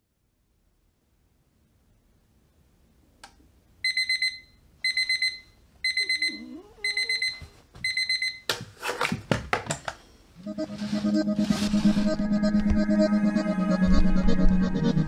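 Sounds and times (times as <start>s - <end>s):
electronic alarm beeping: 3.8s - 8.5s.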